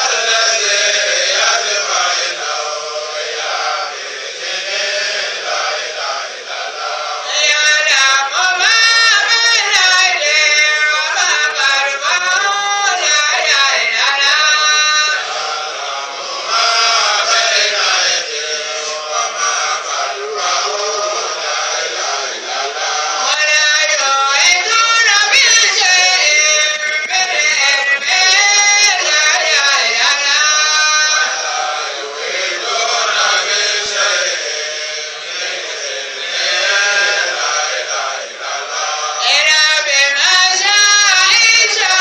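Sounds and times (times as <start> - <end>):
man singing into a microphone: 7.2 - 15.3, 23.2 - 31.6, 39.2 - 42.0.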